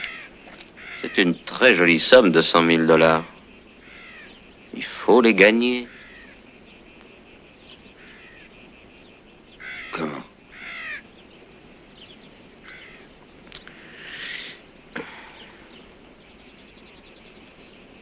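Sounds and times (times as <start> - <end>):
crows cawing: 0.0 - 1.6, 3.5 - 4.6, 5.7 - 6.5, 7.9 - 8.6, 9.5 - 11.1, 12.6 - 16.0.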